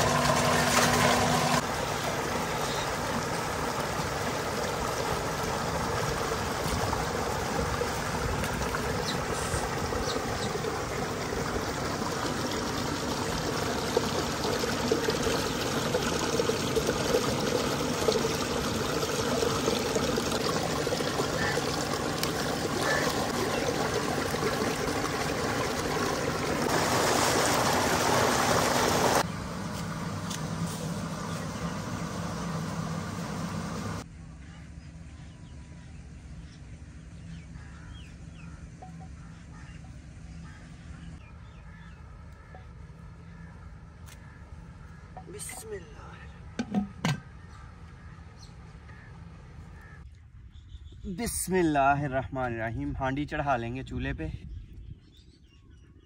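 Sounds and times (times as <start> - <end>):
small water splashes: 0.0 - 29.3
water gushing from pipe: 0.0 - 29.3, 30.5 - 34.0
water running down channel: 0.0 - 34.0.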